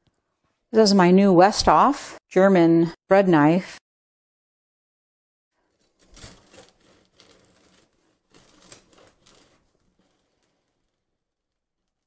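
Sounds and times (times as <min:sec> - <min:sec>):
bread knife sawing through crust: 0:05.8 - 0:10.5.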